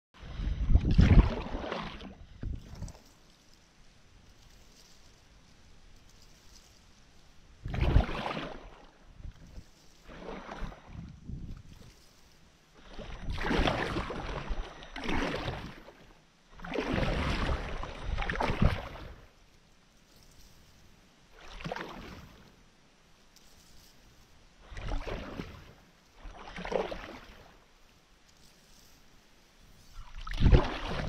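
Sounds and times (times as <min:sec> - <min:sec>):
paddle splashing through water: 0:00.2 - 0:05.1, 0:07.6 - 0:19.5, 0:20.1 - 0:22.6, 0:24.6 - 0:31.0.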